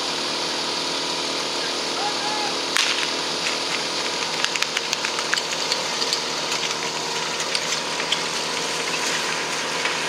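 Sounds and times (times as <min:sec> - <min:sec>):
pump engine running: 0:00.0 - 0:10.0
sharp clicks and knocks: 0:02.8 - 0:09.2.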